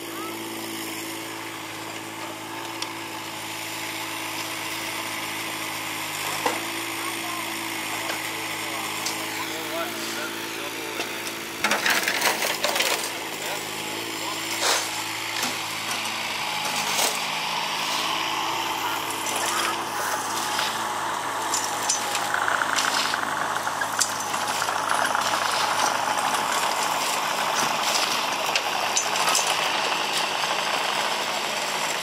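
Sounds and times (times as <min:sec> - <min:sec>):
excavator engine running: 0:00.0 - 0:32.0
shovel scraping gravel: 0:11.0 - 0:31.3.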